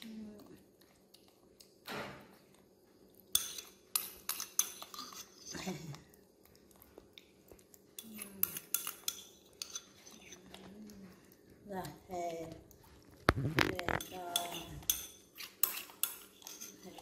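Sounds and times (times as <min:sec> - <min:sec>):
metal spoon scraping ceramic bowl: 0:03.4 - 0:05.6, 0:08.0 - 0:10.4, 0:13.3 - 0:17.0.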